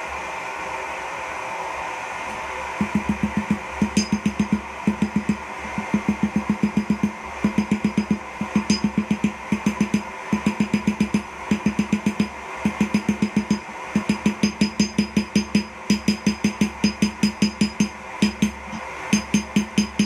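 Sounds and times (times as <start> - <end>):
steady hum: 0.0 - 20.0
hammer striking steel on anvil: 2.8 - 20.0.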